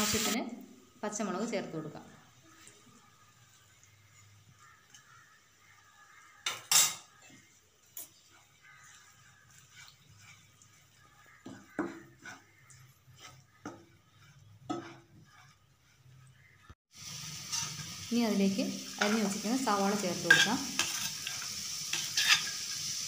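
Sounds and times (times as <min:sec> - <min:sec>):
frying sizzle: 0:00.0 - 0:23.0
spatula scraping a frying pan: 0:02.5 - 0:18.1, 0:20.2 - 0:23.0.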